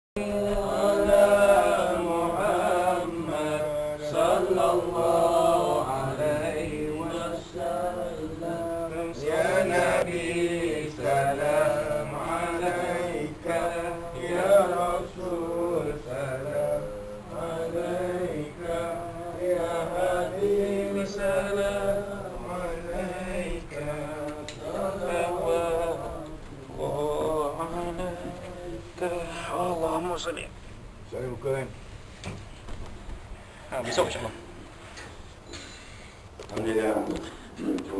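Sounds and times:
men chanting together: 0:00.2 - 0:29.9.

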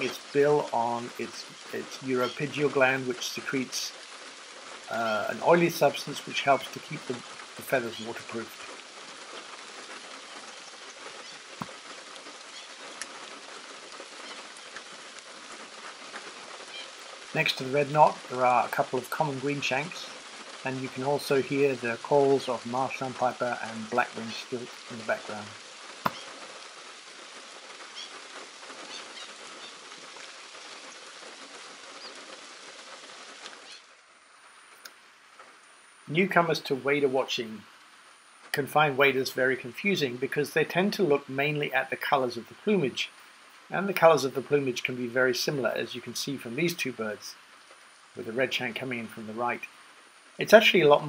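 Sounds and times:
light rain on water and mud: 0:00.0 - 0:51.0
distant wader calls: 0:26.1 - 0:26.4, 0:27.9 - 0:28.2, 0:28.8 - 0:29.8.

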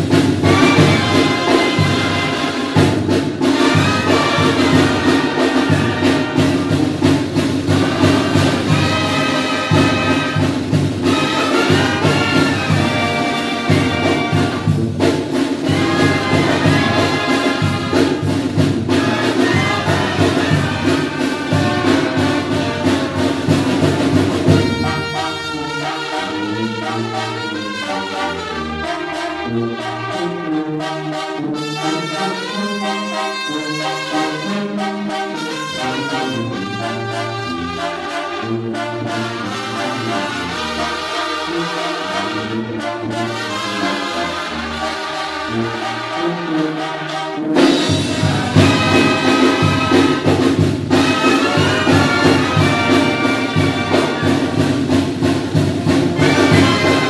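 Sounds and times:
brass band playing: 0:00.0 - 0:57.0
steady beat: 0:47.6 - 0:57.0.

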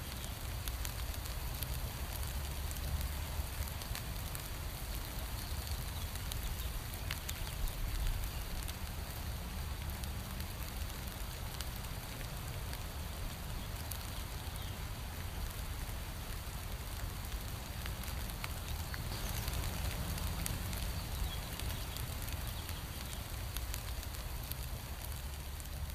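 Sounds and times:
rain falling on bushes: 0:00.0 - 0:25.9
sharp drops ticking: 0:17.3 - 0:25.3.

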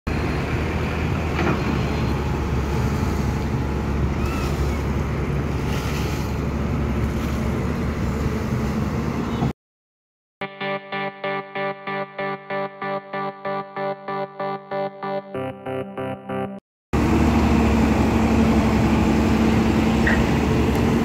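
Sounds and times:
excavator diesel engine running: 0:00.1 - 0:05.6, 0:12.0 - 0:21.0
plucked guitar music: 0:10.4 - 0:16.6.

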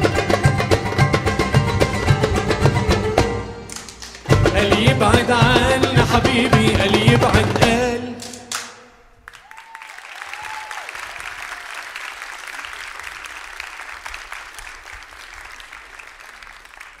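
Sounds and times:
short cheers: 0:09.3 - 0:13.8
audience applauding: 0:09.3 - 0:17.0.

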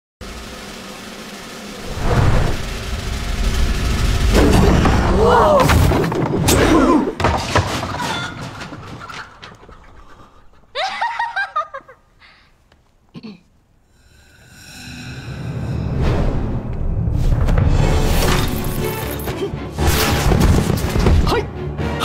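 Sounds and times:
loud voices: 0:05.0 - 0:05.8.

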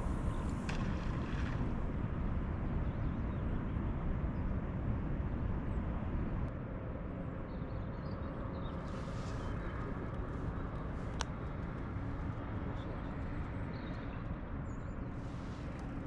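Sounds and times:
wind buffeting microphone: 0:00.0 - 0:06.5.

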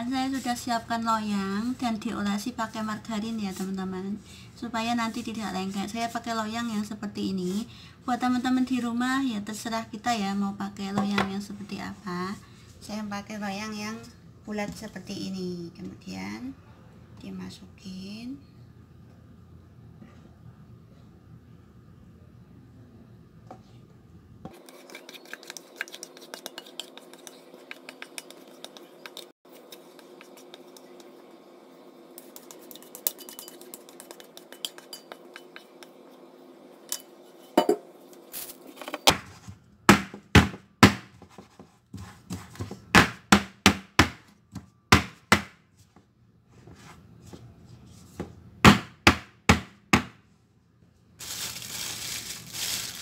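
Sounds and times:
batter scraped from steel bowl: 0:24.5 - 0:31.0, 0:32.1 - 0:36.2
plastic piping bag crinkling: 0:51.2 - 0:53.0.

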